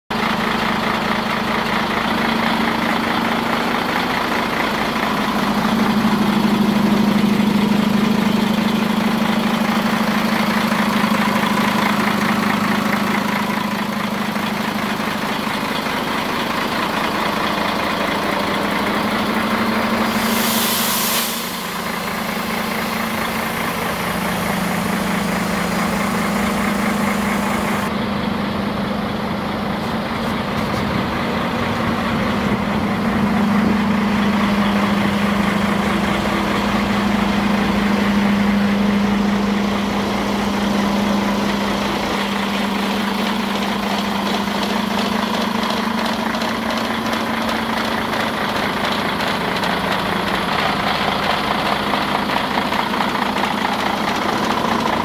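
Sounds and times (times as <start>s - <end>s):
diesel truck engine idling: 0.1s - 55.0s
short air hiss: 19.9s - 27.9s.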